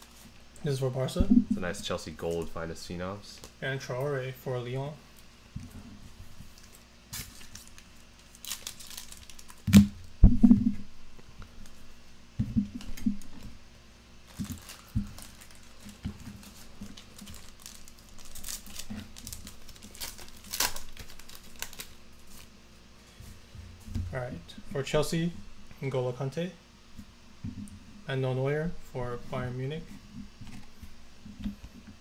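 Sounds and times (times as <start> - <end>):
wrapper crinkling: 6.5 - 9.8, 14.2 - 22.5
cards rustling: 6.6 - 9.6, 14.3 - 22.5
foil card pack tearing: 6.6 - 9.8, 14.3 - 22.5.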